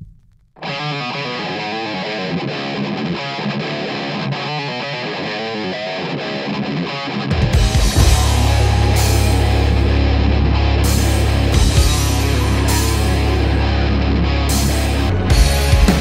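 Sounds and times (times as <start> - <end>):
distorted electric guitar riff: 0.6 - 16.0
heavy rock band playing: 7.4 - 16.0.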